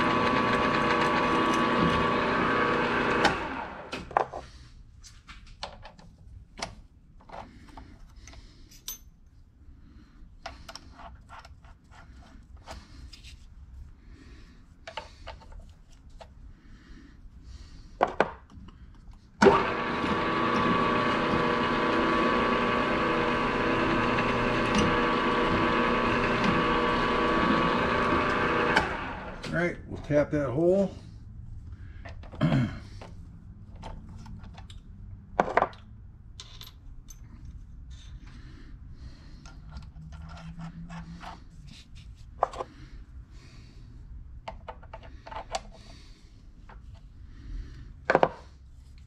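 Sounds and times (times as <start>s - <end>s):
milling machine spindle running down: 0.0s - 3.9s, 19.4s - 29.5s
mill motor humming: 0.0s - 4.0s, 19.4s - 29.5s.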